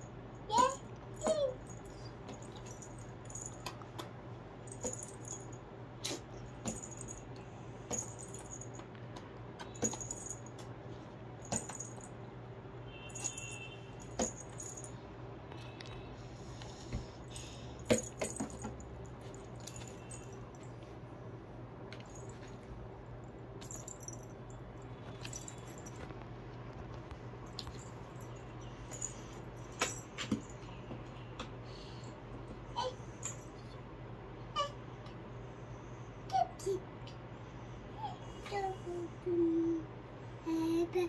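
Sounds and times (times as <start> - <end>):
metal bangles jingling: 4.7 - 5.6, 6.5 - 8.8, 9.6 - 10.6, 12.9 - 15.0, 17.3 - 20.7, 23.6 - 26.1, 27.4 - 30.8.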